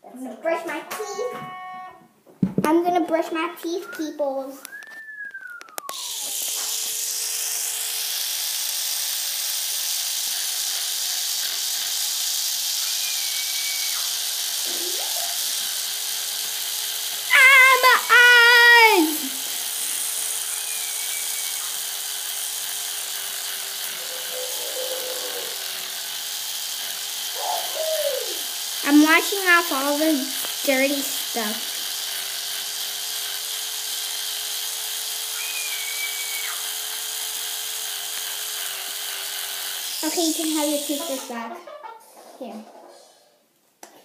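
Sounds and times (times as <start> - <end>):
electric toothbrush humming: 0.9 - 2.6, 4.7 - 41.6
high wavering calls: 24.0 - 25.6, 27.4 - 28.4, 35.4 - 36.6.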